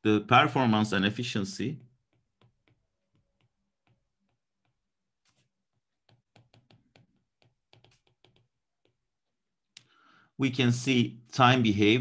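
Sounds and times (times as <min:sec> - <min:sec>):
stylus pen tapping on tablet screen: 0:01.8 - 0:09.2.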